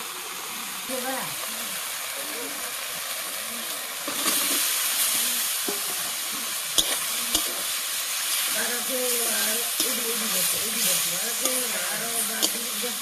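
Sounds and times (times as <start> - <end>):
potatoes sizzling in hot oil: 0.0 - 13.0
metal spatula clacking on pan: 6.8 - 7.6, 9.8 - 10.2, 11.4 - 11.7, 12.3 - 12.8.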